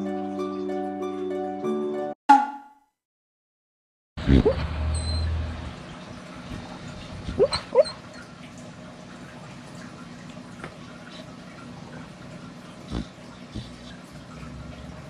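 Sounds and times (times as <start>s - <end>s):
dog whimpering yips: 7.4s - 8.2s.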